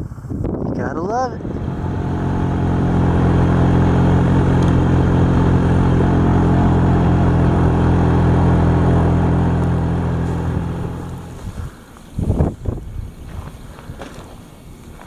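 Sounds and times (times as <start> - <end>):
wind on microphone: 0.0 - 3.5, 10.4 - 14.0
wind turbine humming: 1.2 - 14.0.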